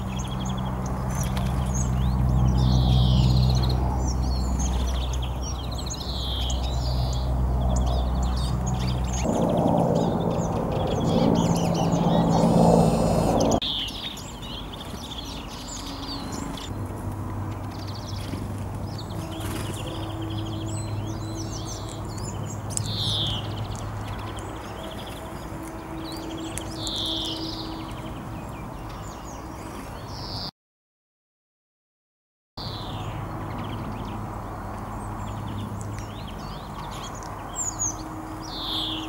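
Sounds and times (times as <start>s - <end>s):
songbirds chirping: 0.0s - 30.5s, 32.6s - 39.0s
low droning noise: 7.3s - 13.6s.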